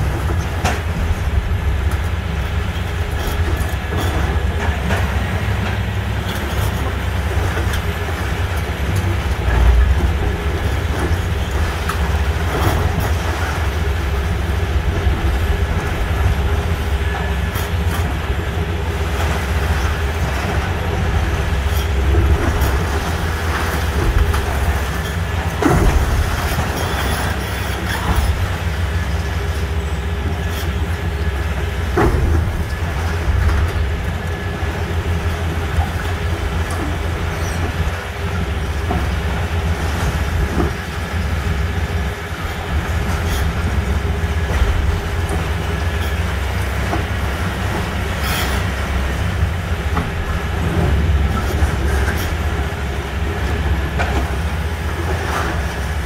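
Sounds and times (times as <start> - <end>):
diesel engine running under load: 0.0 - 56.0.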